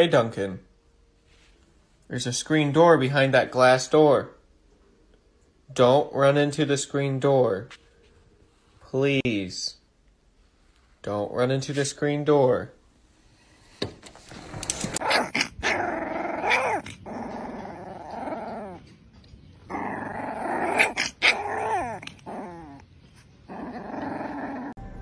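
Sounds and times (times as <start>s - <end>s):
puppy growling: 14.9s - 19.0s, 19.6s - 24.8s.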